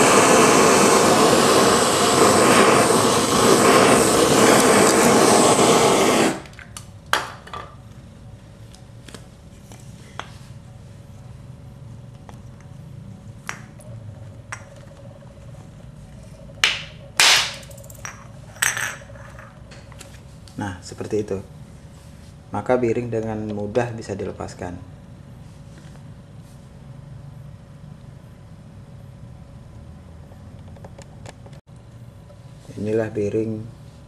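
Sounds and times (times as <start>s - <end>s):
blowtorch hissing: 0.0s - 6.6s.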